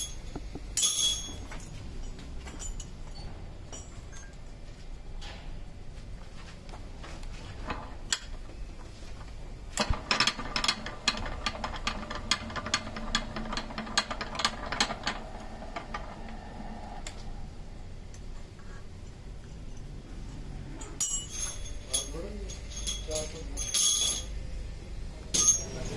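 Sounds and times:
metallic clicks and rattles: 9.8s - 17.2s
electric motor humming: 10.8s - 18.2s.

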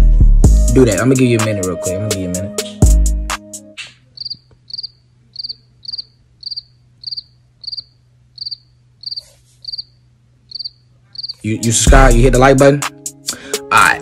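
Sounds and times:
hip-hop beat: 0.4s - 3.9s, 11.4s - 14.0s
cricket chirping: 4.2s - 11.4s.

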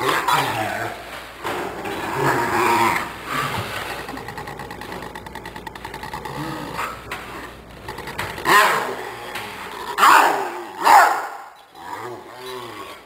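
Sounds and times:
small dog growling: 1.8s - 7.1s, 11.8s - 13.0s.

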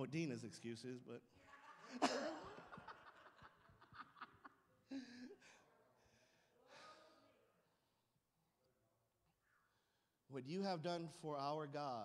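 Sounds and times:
people laughing and chuckling: 1.6s - 5.6s.

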